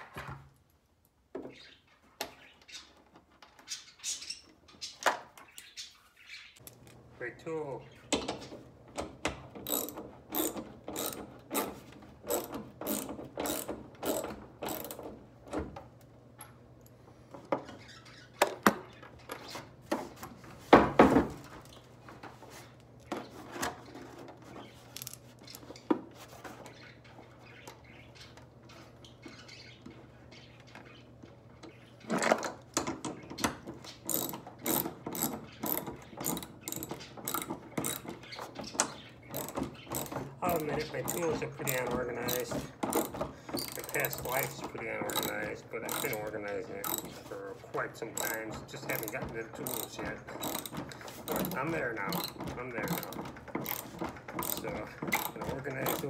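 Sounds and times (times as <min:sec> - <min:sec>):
ratchet wrench clicking: 0:09.6 - 0:11.7, 0:12.3 - 0:15.0, 0:34.1 - 0:38.0, 0:45.1 - 0:45.3, 0:45.9 - 0:46.2, 0:46.8 - 0:47.0, 0:49.0 - 0:50.7.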